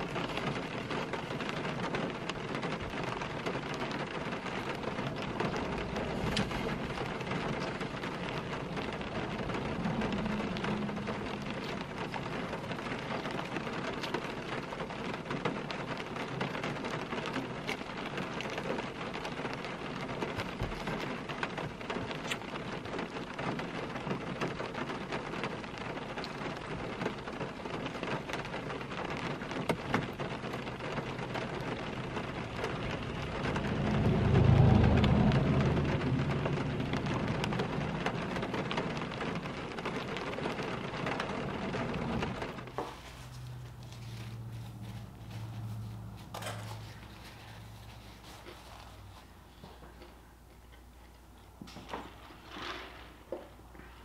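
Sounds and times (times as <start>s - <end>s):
rain pattering on car roof: 0.0s - 54.0s
low thunder rumble: 1.6s - 15.4s, 30.6s - 42.8s.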